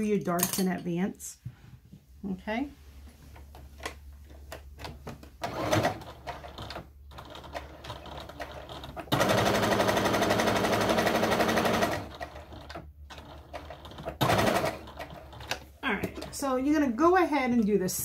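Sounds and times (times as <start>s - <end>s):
sewing machine stitching: 5.4s - 15.6s.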